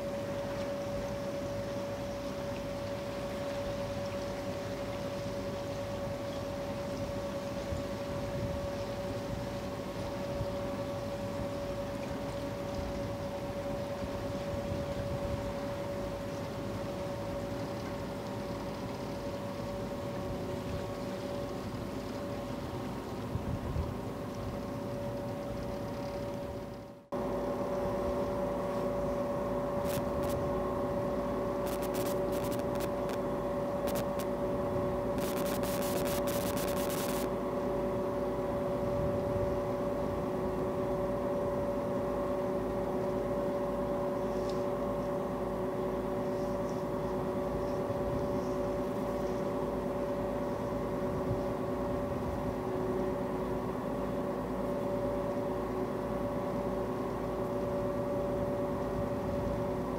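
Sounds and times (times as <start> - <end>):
faint clicking and rattling: 31.6 - 33.2, 35.2 - 37.3.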